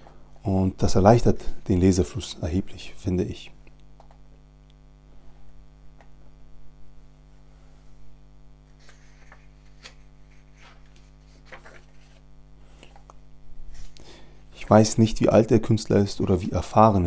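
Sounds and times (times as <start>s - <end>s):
electrical mains hum: 0.0s - 17.0s
rustling comic book pages: 8.8s - 14.0s.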